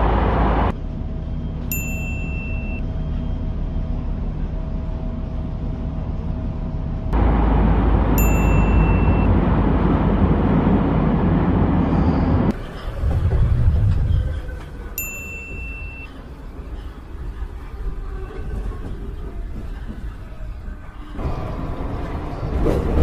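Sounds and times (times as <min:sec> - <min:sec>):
subway car rumble: 0:00.0 - 0:23.0
bright ding sound effect: 0:08.2 - 0:09.3.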